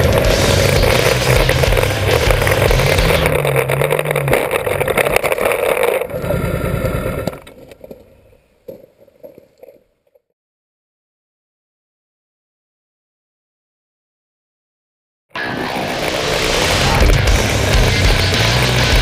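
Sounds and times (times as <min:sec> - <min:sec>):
motorcycle engine revving: 0:00.0 - 0:07.5, 0:15.4 - 0:19.0.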